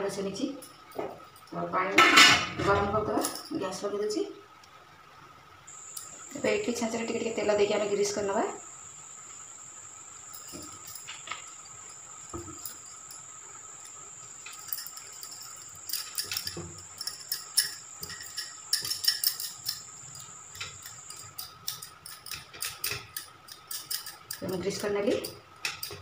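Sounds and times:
faint high-pitched whine: 0:00.0 - 0:26.0
metal plates clinking: 0:10.3 - 0:26.0.

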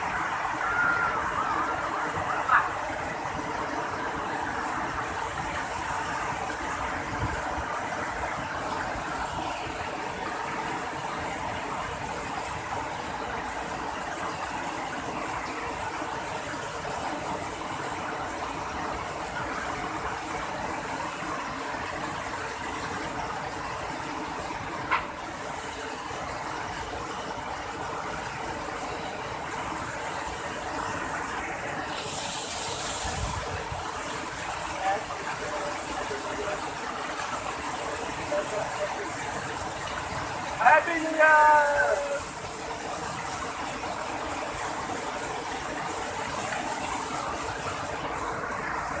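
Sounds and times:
ocean surf breaking: 0:00.0 - 0:12.8
steady rushing noise: 0:00.0 - 0:49.0.

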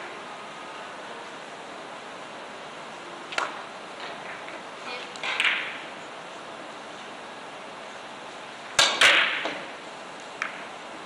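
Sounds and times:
billiard balls clicking: 0:04.1 - 0:05.8, 0:10.4 - 0:10.7
cue striking ball: 0:04.2 - 0:05.8, 0:08.8 - 0:09.7, 0:10.4 - 0:10.6.

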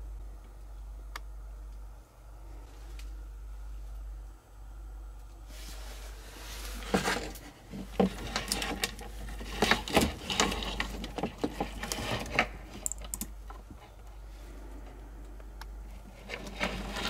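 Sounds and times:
low hum: 0:00.0 - 0:08.0, 0:12.3 - 0:17.0
cables and connectors clicking: 0:00.4 - 0:01.8, 0:07.1 - 0:14.2, 0:15.2 - 0:17.0.

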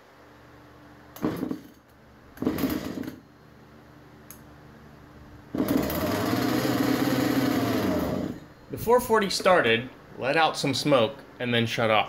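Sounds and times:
chainsaw engine running: 0:05.6 - 0:08.4
recoil starter cord pull: 0:05.6 - 0:08.4.

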